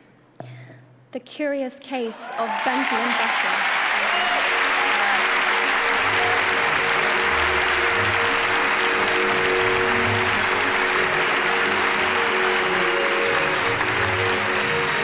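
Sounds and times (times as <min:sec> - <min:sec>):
audience applauding: 0:02.2 - 0:15.0
music with held notes: 0:04.2 - 0:15.0.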